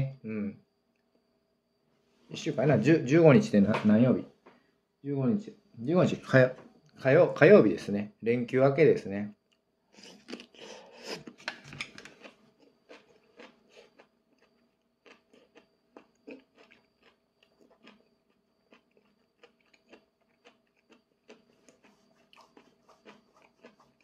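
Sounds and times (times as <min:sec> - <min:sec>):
faint steady hum: 0:00.0 - 0:24.0
close-up chewing noodles: 0:10.0 - 0:24.0.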